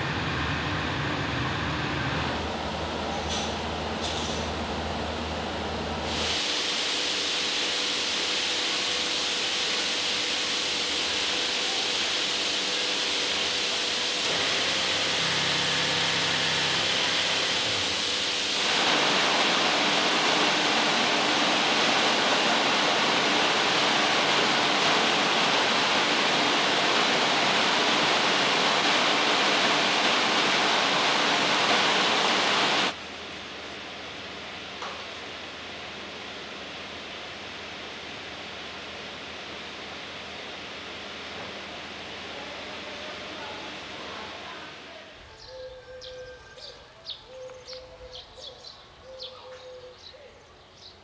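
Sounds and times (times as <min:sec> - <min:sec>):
faint machinery hum: 0:00.0 - 0:18.7, 0:19.9 - 0:51.0
textile mill machinery hissing: 0:00.0 - 0:33.0.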